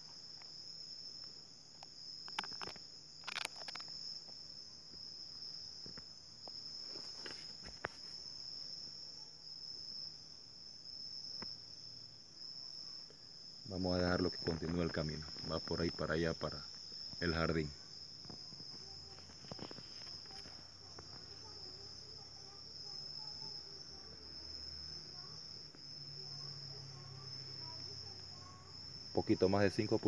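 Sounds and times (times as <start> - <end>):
night insects trilling: 0.0 - 30.0.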